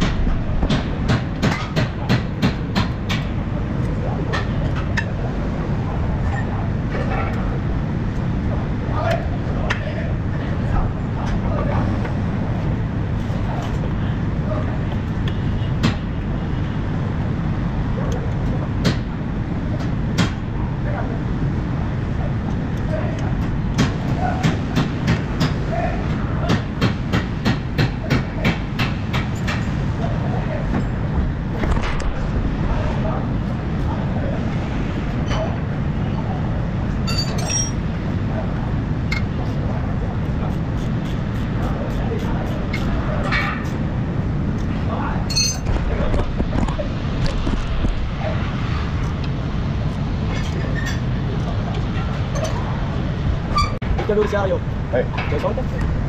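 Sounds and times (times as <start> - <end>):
metal tools clinking: 37.0 - 37.8, 45.3 - 45.7.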